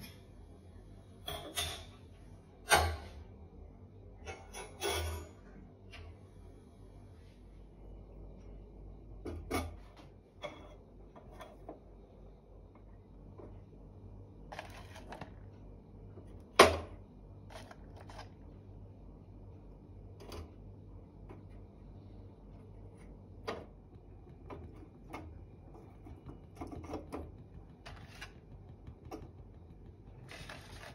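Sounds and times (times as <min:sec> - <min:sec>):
charcoal scraping and clinking on metal: 0:14.5 - 0:15.2, 0:30.3 - 0:30.9.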